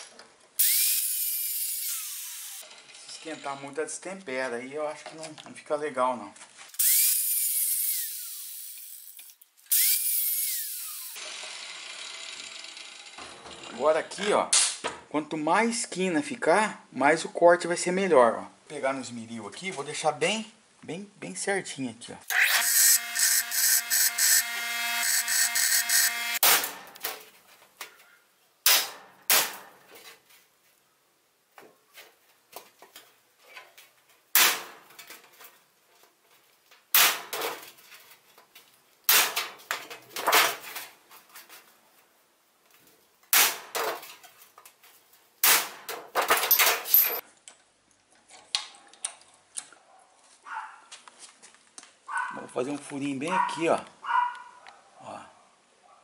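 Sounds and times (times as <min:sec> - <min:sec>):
bench grinder grinding steel: 0:09.7 - 0:13.2, 0:22.3 - 0:26.4.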